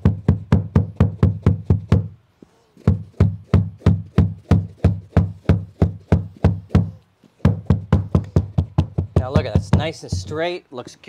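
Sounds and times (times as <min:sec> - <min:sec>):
hammer striking rapidly: 0:02.9 - 0:10.4.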